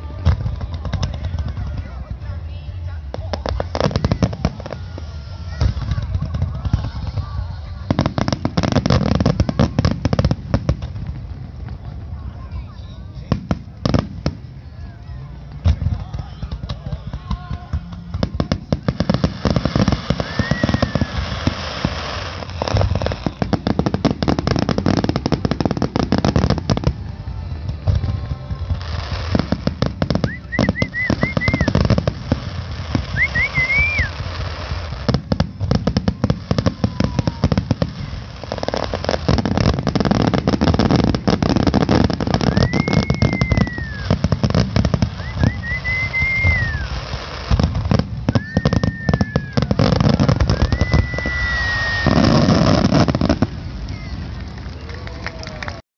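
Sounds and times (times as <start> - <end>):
fireworks bursts and crackling: 0.0 - 55.8
whistles of climbing shells: 30.2 - 31.8, 33.1 - 34.1, 42.4 - 44.2, 45.1 - 46.9.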